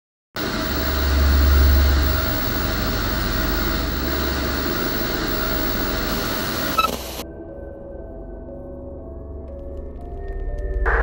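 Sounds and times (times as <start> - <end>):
television static hiss: 0.4 - 7.2.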